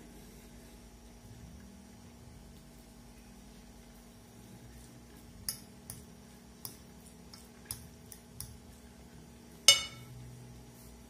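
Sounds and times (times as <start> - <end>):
metal fork clinking on a plate: 9.7 - 10.1.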